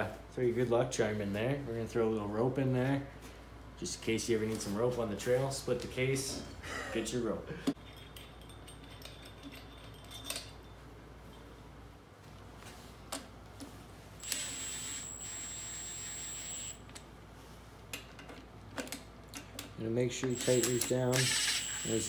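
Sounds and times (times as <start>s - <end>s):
power tool whining: 14.2s - 16.8s, 20.3s - 22.0s
metal parts clicking: 18.1s - 22.0s.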